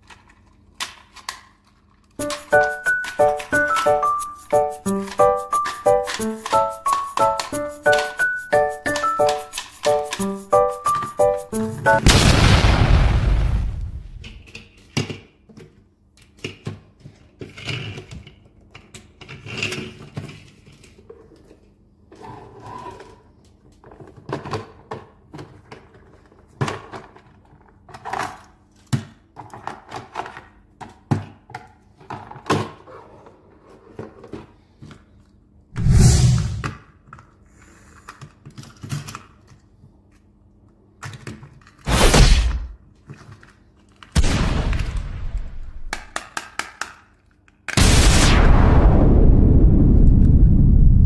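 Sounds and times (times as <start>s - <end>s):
plastic toy clicks and knocks: 0.0s - 4.0s, 4.9s - 10.4s, 45.9s - 47.7s
loud burst: 12.0s - 14.4s, 35.8s - 36.7s, 41.9s - 42.8s, 44.2s - 46.0s, 47.8s - 51.0s.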